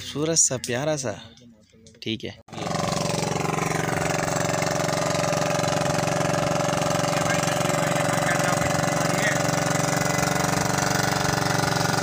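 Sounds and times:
boat engine running: 2.5s - 12.0s.

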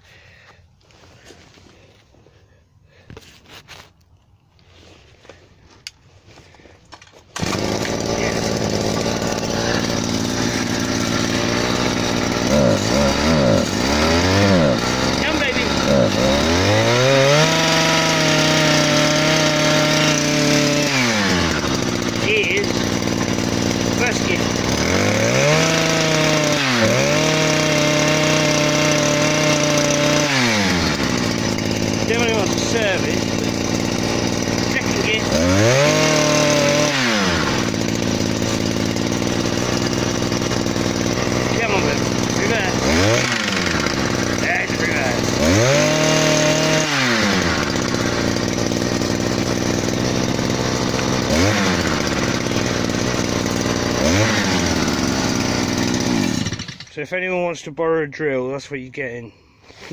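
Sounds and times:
drill engine revving: 7.3s - 57.1s.

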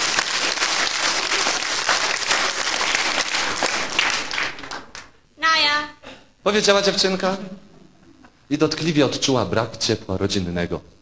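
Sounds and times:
audience applauding: 0.0s - 5.2s.

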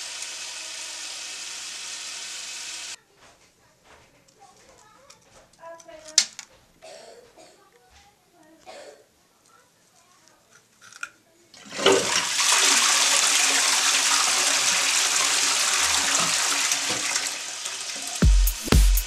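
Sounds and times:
toilet flushing: 11.6s - 18.2s.

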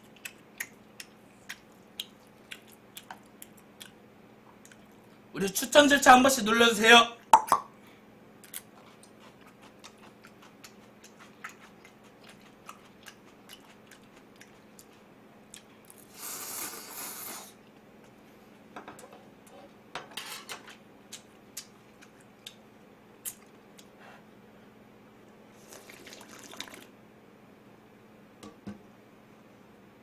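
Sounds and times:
slurping noodles: 16.1s - 17.6s, 25.6s - 26.9s.

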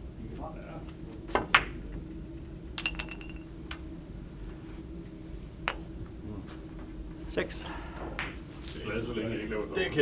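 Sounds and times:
cue striking ball: 1.3s - 1.8s, 8.2s - 8.4s
billiard balls clicking: 2.8s - 3.5s.

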